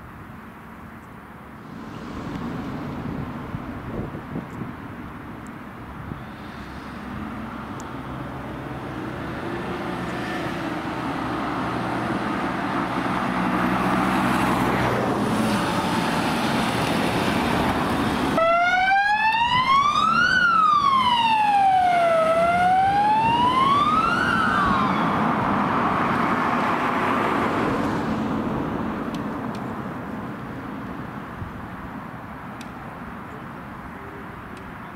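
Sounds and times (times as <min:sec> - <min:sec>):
vehicle engine and tyres: 0:00.0 - 0:34.9
siren wailing: 0:18.4 - 0:25.5.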